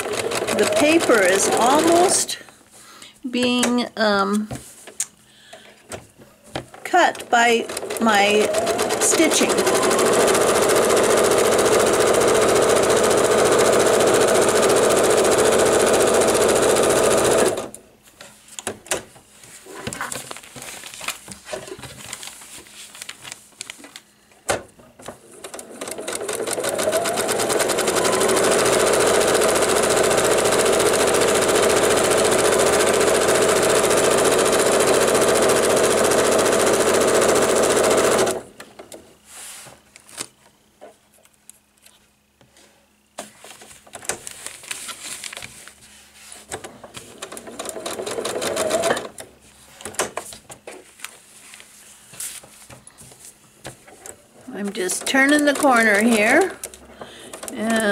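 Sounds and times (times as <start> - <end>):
sewing machine stitching: 0.0 - 2.3, 6.9 - 17.8, 25.2 - 38.5, 47.1 - 49.2, 54.6 - 56.5.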